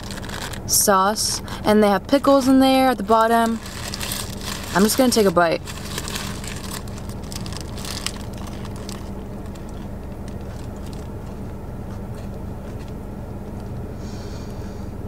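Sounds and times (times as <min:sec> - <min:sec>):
paper wrapper rustling: 0:00.0 - 0:00.6, 0:03.1 - 0:11.5
car cabin hum: 0:00.0 - 0:15.0.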